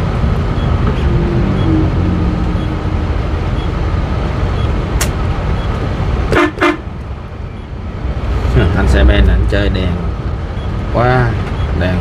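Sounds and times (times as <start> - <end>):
vehicle engine and road rumble: 0.0 - 12.0
sharp click: 5.0 - 5.2
short loud horn blasts: 6.3 - 6.8.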